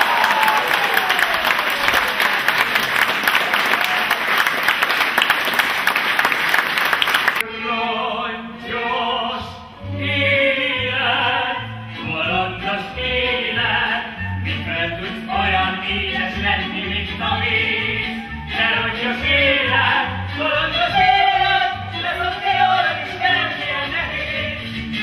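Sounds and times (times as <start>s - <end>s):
audience applauding: 0.0s - 7.4s
bass accompaniment: 7.5s - 25.0s.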